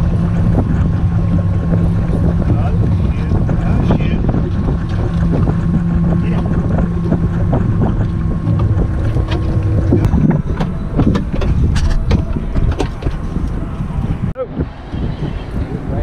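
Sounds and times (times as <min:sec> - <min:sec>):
gear knocking and clattering: 0:00.0 - 0:14.3
steady low hum: 0:00.0 - 0:16.0
wind buffeting microphone: 0:00.0 - 0:16.0.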